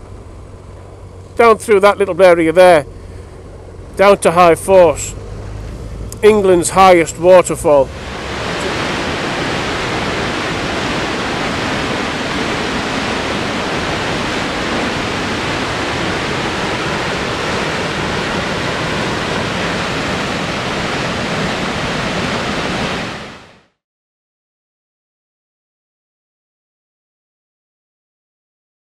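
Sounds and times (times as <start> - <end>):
waterfall rushing: 4.3 - 23.6.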